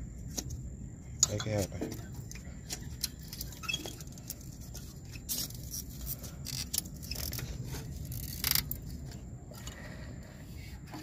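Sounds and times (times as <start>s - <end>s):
plastic and metal scraping: 1.5s - 9.9s.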